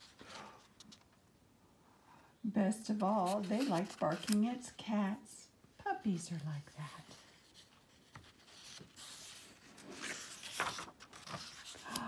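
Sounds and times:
book pages turning: 3.0 - 4.6, 6.4 - 12.0.

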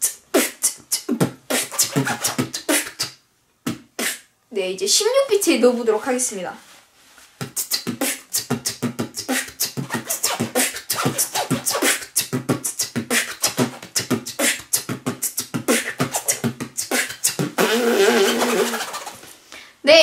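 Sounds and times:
beatboxing drum sounds: 0.0 - 4.3, 7.4 - 19.2
zipper scratching: 1.5 - 2.8, 9.3 - 12.0, 13.1 - 14.6, 15.2 - 19.3.

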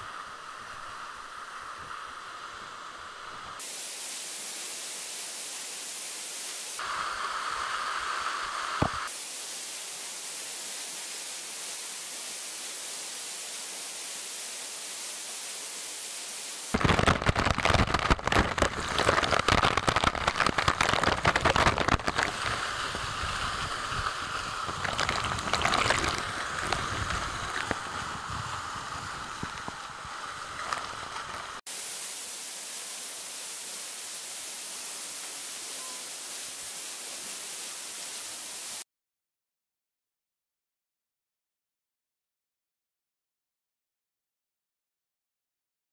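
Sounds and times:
steady even hiss: 0.0 - 38.8
waterfall splashing on rocks: 3.6 - 38.8.

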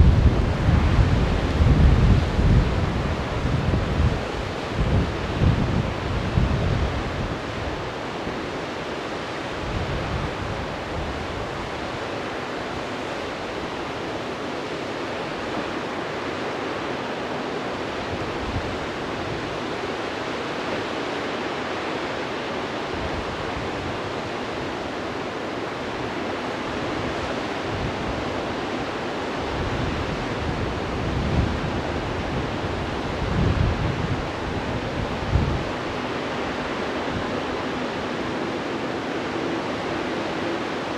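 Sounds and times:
wind buffeting microphone: 0.0 - 8.6, 26.1 - 40.9
white-water river rushing: 0.0 - 40.9.

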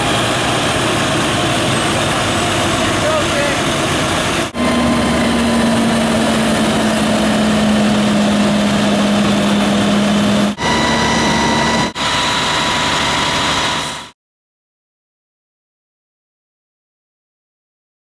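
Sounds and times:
fire truck engine running: 0.0 - 14.2.

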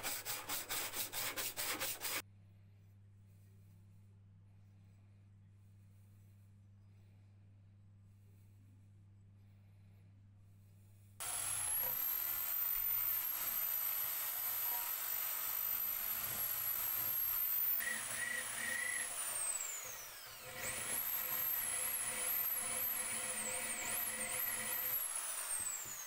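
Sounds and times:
rotary tool whining: 11.2 - 26.0.

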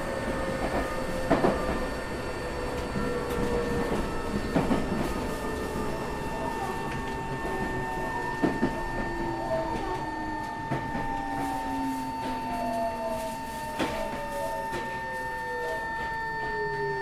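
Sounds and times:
steady high whine: 0.0 - 17.0
train motor whine: 0.0 - 17.0.

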